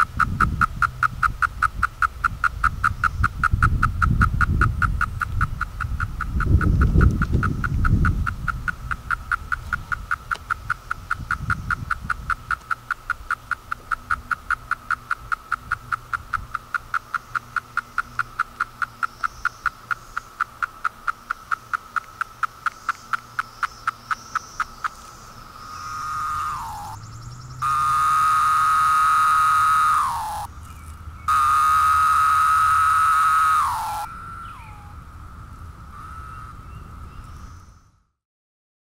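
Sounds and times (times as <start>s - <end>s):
cicadas calling: 0.0s - 38.1s.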